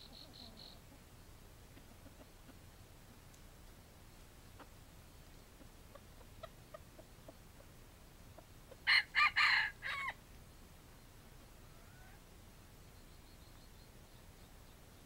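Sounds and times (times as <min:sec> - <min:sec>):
faint clucks: 0:01.7 - 0:03.4, 0:04.4 - 0:08.8
rooster crowing: 0:08.9 - 0:10.2.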